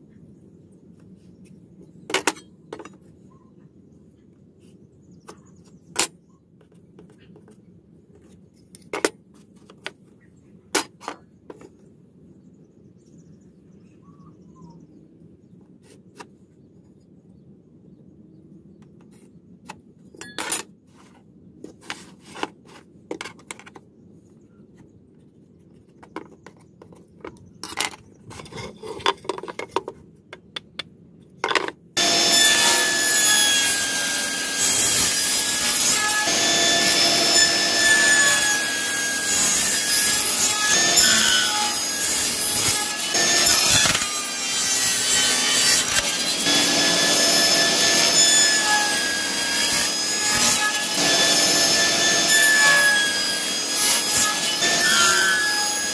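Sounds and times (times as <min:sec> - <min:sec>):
table saw running with whine: 0:32.0 - 0:55.9.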